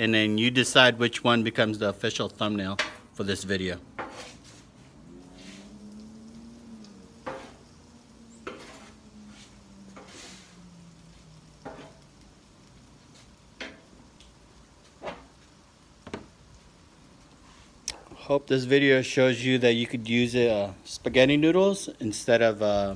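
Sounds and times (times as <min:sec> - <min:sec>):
food sizzling: 0:00.0 - 0:22.9
metal spatula scraping griddle: 0:04.0 - 0:05.7, 0:07.1 - 0:10.6, 0:11.6 - 0:12.2, 0:13.1 - 0:13.9
low hum: 0:04.7 - 0:12.8.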